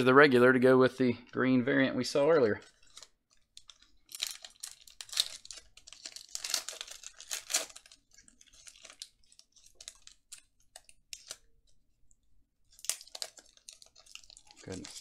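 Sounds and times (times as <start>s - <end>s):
foil pack crinkling: 2.6s - 11.5s, 12.7s - 15.0s.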